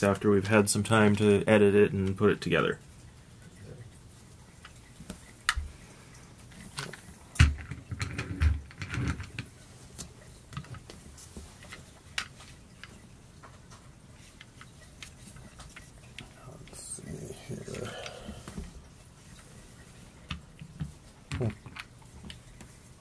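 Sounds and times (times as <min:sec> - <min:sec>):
plastic figures clicking and knocking: 0:20.3 - 0:22.7.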